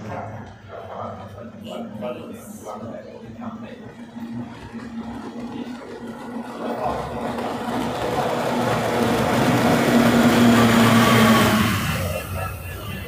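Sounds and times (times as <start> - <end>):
outboard motors buzzing: 3.5 - 13.0.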